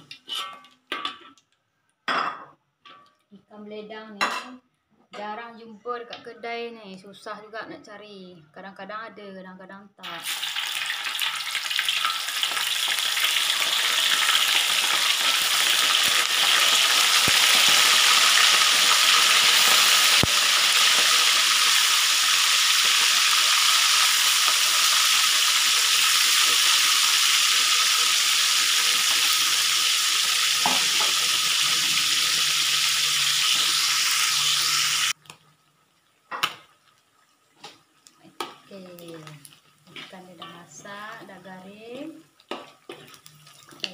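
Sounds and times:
fish sizzling in hot oil: 10.1 - 43.9.

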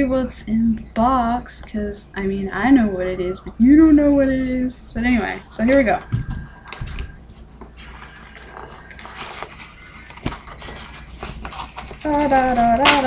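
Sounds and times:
packaging rustling and crinkling: 5.1 - 13.0.

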